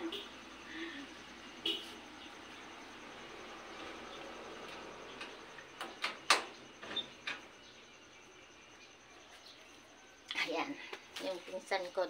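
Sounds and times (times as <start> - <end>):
faint background noise: 0.0 - 12.0
sharp clicks and knocks: 5.2 - 7.5.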